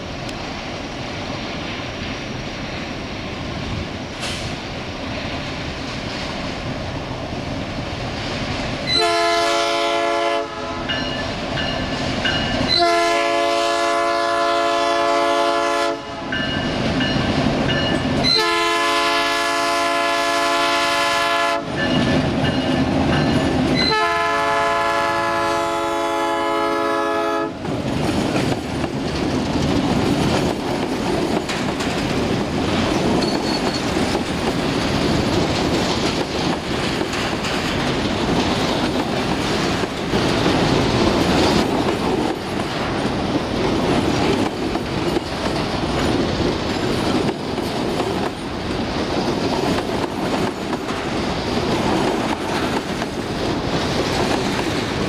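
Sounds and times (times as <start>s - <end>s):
locomotive air horn blasts: 8.9s - 11.0s, 12.7s - 16.3s, 18.2s - 21.8s, 23.8s - 27.6s
freight wagons rumbling and clattering: 27.7s - 55.0s.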